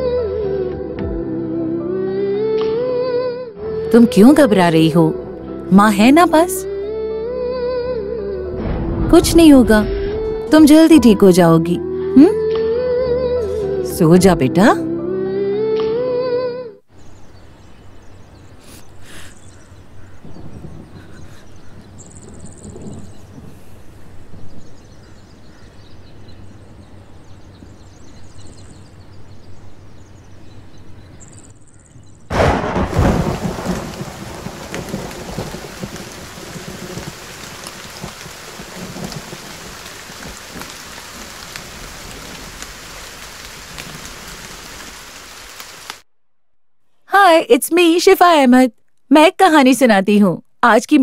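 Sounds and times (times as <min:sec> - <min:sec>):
thunder clap rumbling: 0:08.5 - 0:11.3, 0:20.2 - 0:24.7, 0:32.3 - 0:45.5
heavy rain hissing: 0:18.5 - 0:25.0, 0:32.3 - 0:46.0.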